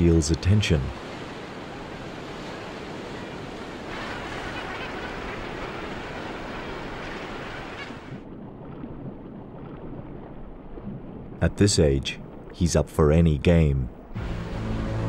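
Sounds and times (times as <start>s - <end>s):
ocean surf breaking: 0.0s - 8.3s, 14.0s - 15.0s
muffled underwater wash: 0.0s - 15.0s.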